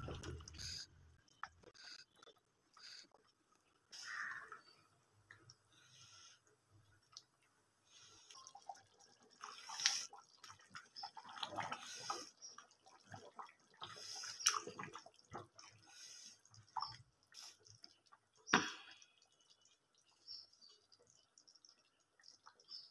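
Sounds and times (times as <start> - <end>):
ladle stirring thick gravy: 8.3 - 22.9.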